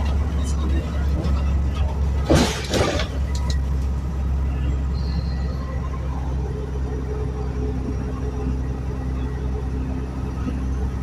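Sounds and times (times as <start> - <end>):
bus engine and drivetrain hum: 0.0 - 11.0
road rumble: 0.0 - 11.0
short loud clatter: 2.2 - 3.4.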